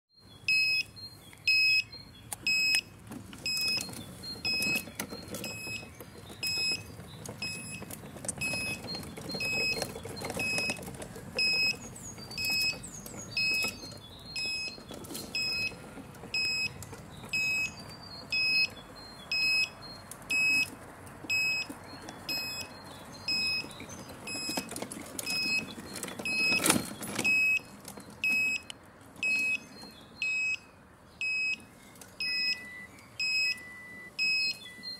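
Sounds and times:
short high beeps: 32.2 - 34.9.

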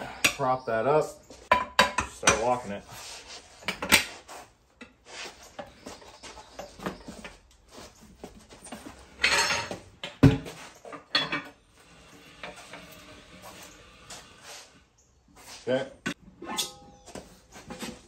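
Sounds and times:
metal scraping and clanking: 8.8 - 14.5, 16.2 - 18.0.

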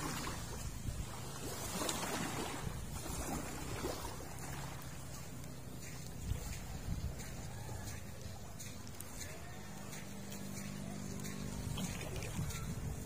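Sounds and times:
wind on microphone: 0.0 - 4.8, 5.9 - 8.4, 11.4 - 13.0
low steady hum: 0.0 - 13.0
waves washing on sandy shore: 0.0 - 13.0.

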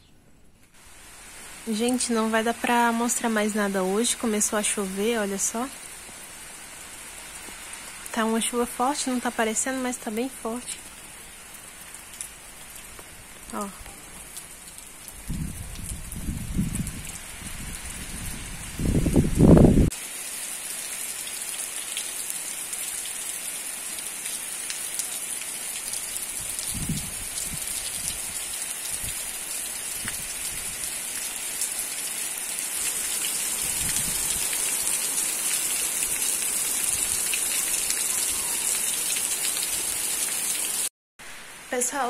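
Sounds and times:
heavy rain on dirt: 9.9 - 41.6.

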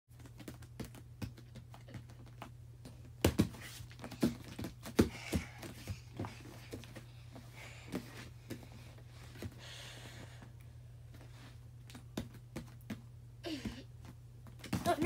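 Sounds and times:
feet and hands thumping on mat: 0.2 - 9.6, 14.5 - 15.0
steady low hum: 0.2 - 15.0.

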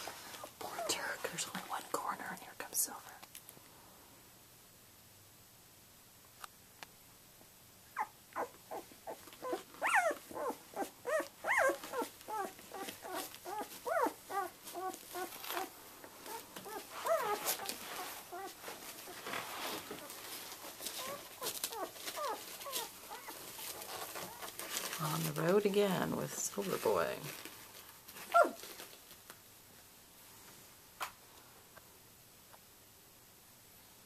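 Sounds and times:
faint clicks and rustling: 0.0 - 3.7, 9.2 - 29.5
puppies whimpering and squeaking: 8.0 - 24.6, 28.3 - 28.7.

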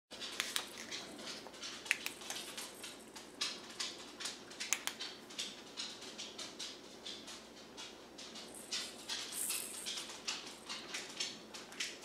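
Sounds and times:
faint room hum: 0.1 - 12.0
light clicks: 4.6 - 5.5
soft rustles: 7.2 - 12.0.

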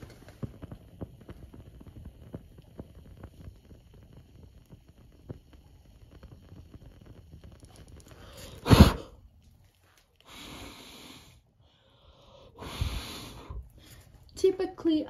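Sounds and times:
hissing air: 0.0 - 9.4, 10.1 - 14.2
small fire crackling: 0.0 - 15.0
rush of air: 8.0 - 9.3, 12.1 - 14.0.

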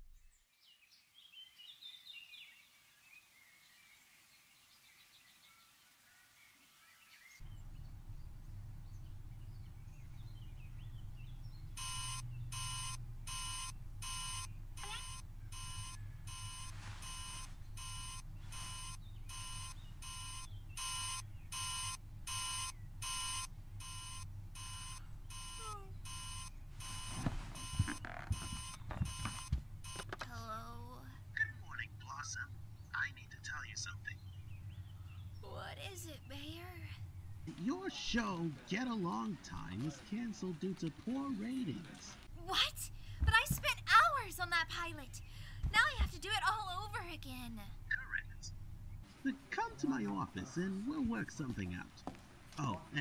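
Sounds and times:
low hum: 7.4 - 35.6
telephone ringing beep: 11.8 - 30.1
soft thumps: 26.9 - 30.3.

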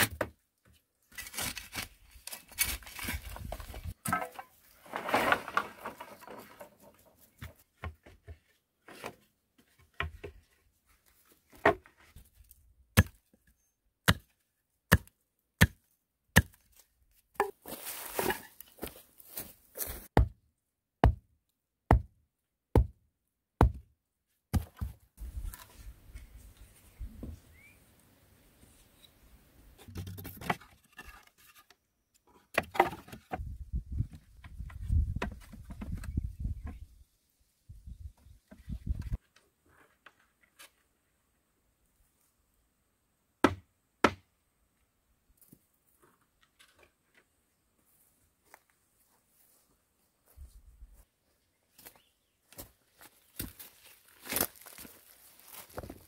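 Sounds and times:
wooden stake hammered into ground: 13.0 - 13.2, 14.0 - 14.3, 14.9 - 16.6, 20.1 - 20.4, 21.0 - 21.3, 21.9 - 22.1, 22.7 - 23.0, 23.6 - 23.9, 43.4 - 44.2.

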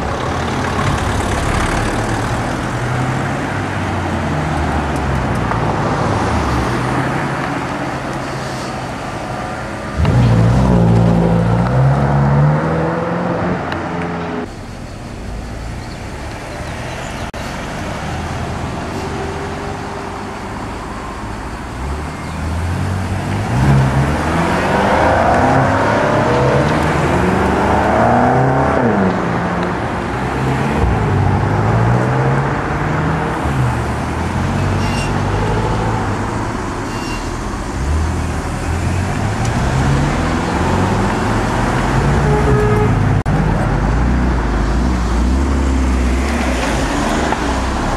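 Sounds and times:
car engines accelerating past: 21.8 - 36.8.

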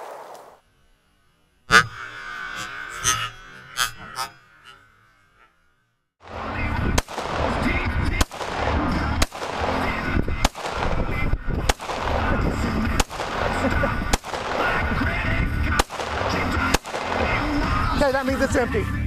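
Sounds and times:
pistol shots: 6.2 - 15.0, 15.7 - 17.6.

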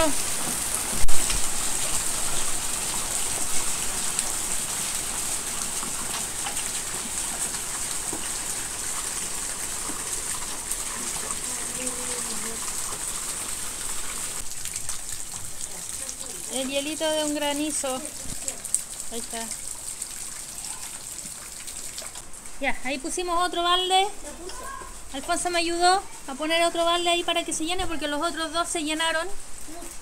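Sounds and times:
heavy rain and hail: 0.0 - 19.8.

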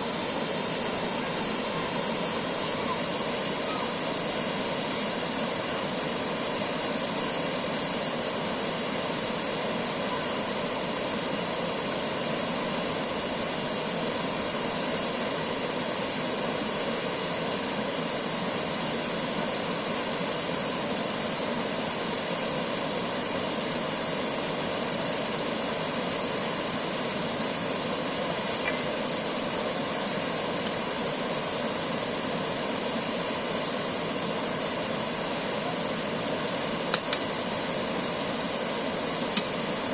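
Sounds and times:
small waterfall rushing: 0.0 - 39.9.

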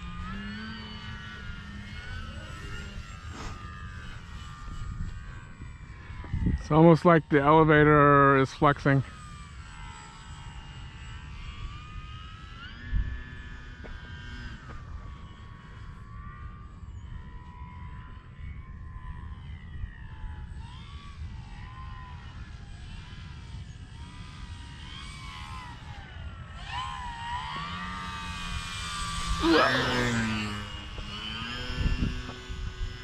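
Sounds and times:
steady low rumble: 0.0 - 8.3
model plane motor whining: 0.0 - 33.0.

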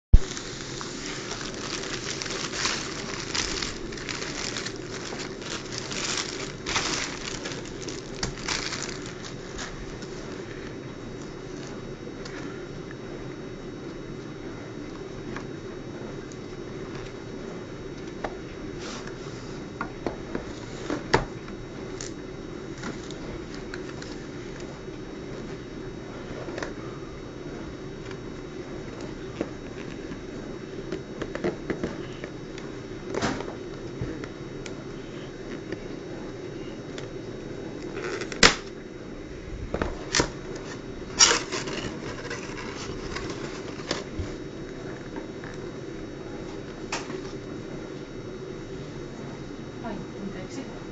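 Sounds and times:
steady low hum: 0.1 - 50.9
cardboard scraping rustle: 0.2 - 10.5, 40.6 - 44.4.

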